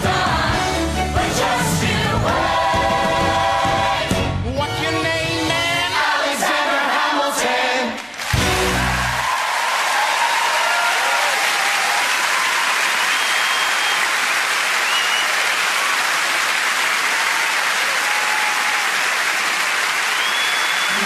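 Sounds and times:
audience applauding: 7.9s - 21.0s
whistles from audience: 12.3s - 16.0s, 20.0s - 21.0s.

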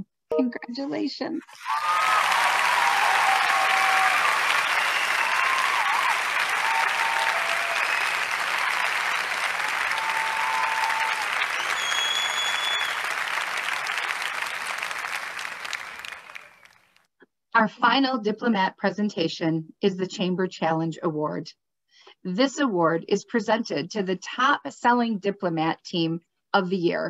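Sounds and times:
people cheering: 1.5s - 16.8s
audience applauding: 1.5s - 16.9s
whistle: 4.7s - 5.7s, 10.0s - 13.2s, 16.2s - 16.8s.

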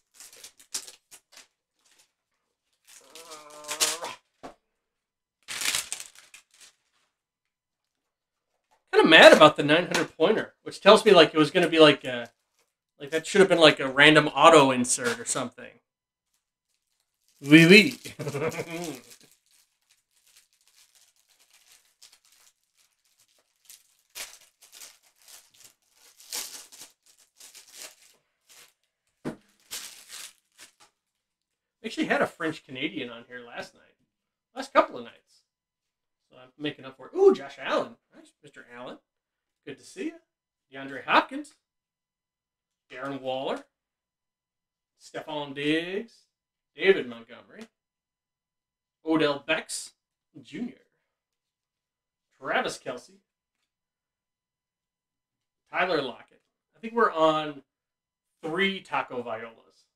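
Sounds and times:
wrapper tearing and crinkling: 0.0s - 4.2s, 5.4s - 7.0s, 16.6s - 30.9s
cardboard rustling: 5.5s - 7.0s, 16.7s - 30.9s.

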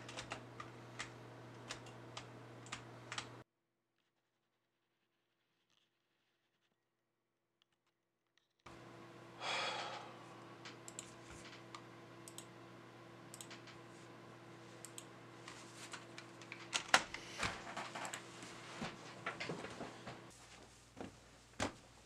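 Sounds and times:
computer keyboard typing: 0.0s - 3.4s, 10.7s - 11.6s, 12.2s - 12.5s, 13.3s - 13.8s, 15.9s - 18.3s
low electrical hum: 0.0s - 3.4s, 8.7s - 22.0s.

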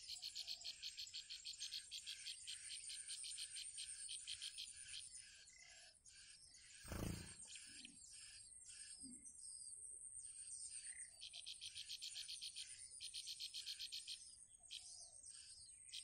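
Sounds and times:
nestlings chirping: 6.9s - 7.6s.

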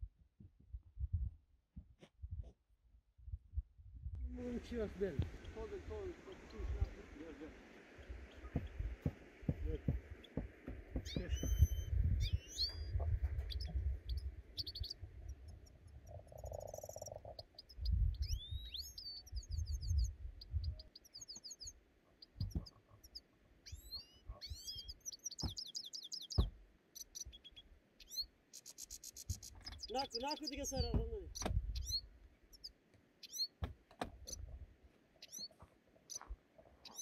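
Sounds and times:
small birds chirping: 4.2s - 37.0s
sharp wooden knocks: 8.5s - 11.7s, 22.4s - 22.7s, 26.4s - 26.6s, 30.8s - 31.6s.

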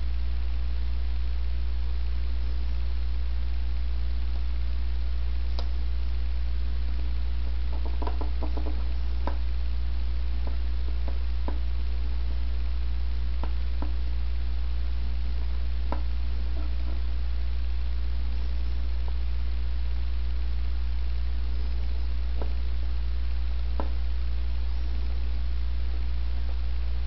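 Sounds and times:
low electrical hum: 0.0s - 27.0s
fingertips tapping plastic: 7.7s - 9.4s.

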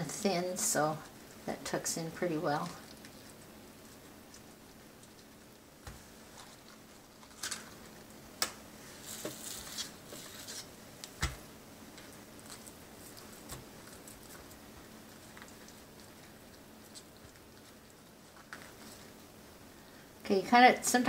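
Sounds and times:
cabbage leaf crinkling: 2.6s - 8.1s, 8.8s - 10.7s, 12.0s - 19.2s.

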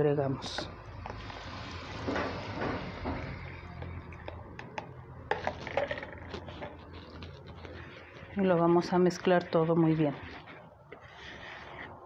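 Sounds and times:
spoon scraping in plastic bowl: 4.2s - 12.0s.

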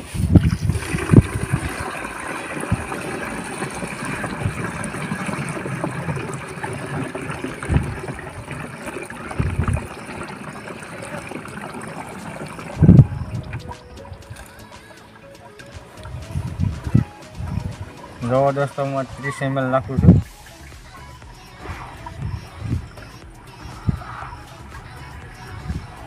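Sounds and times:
water pouring into a tank: 0.0s - 20.7s
low thumps: 15.8s - 18.3s, 19.9s - 26.0s.

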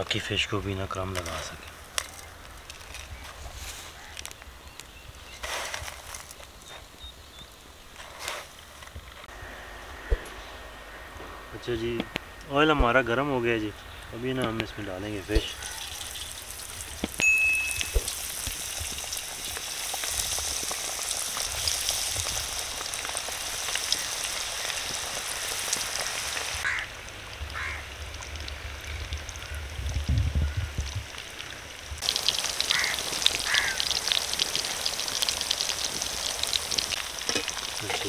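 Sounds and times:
low rumble: 9.2s - 14.2s
fish fingers sizzling in oil: 15.4s - 26.8s, 31.2s - 38.0s
brief high tone: 17.2s - 18.2s.

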